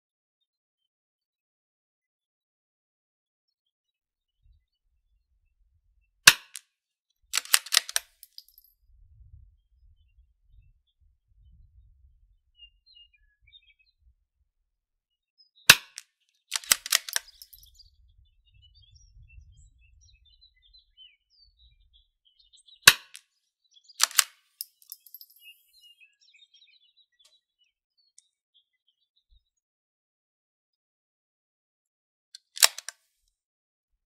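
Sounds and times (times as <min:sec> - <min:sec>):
rifle bolt clicking: 0:06.3 - 0:06.6, 0:07.4 - 0:08.6, 0:15.7 - 0:17.6, 0:22.9 - 0:23.2, 0:24.0 - 0:25.3, 0:32.4 - 0:33.0
rifle shots: 0:06.3 - 0:06.6, 0:07.4 - 0:08.1, 0:15.7 - 0:17.5, 0:22.9 - 0:23.2, 0:24.0 - 0:24.4, 0:32.6 - 0:32.9.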